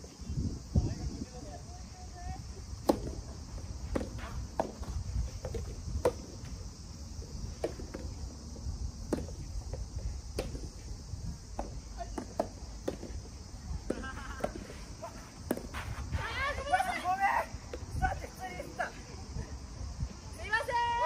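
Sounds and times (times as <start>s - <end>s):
insects chirring: 0.0s - 21.0s
tennis balls struck by rackets: 2.8s - 6.5s, 7.5s - 8.2s, 9.0s - 10.8s, 11.5s - 16.0s.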